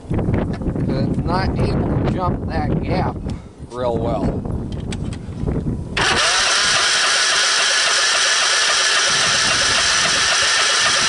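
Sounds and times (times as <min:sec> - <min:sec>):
starter cranking engine: 0:06.0 - 0:11.0.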